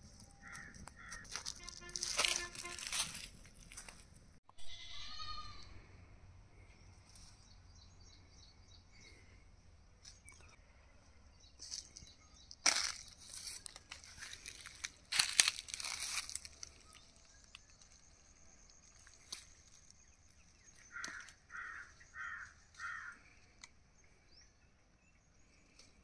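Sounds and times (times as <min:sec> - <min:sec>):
dry plants rustling and crackling: 0:00.0 - 0:04.4, 0:11.6 - 0:23.6.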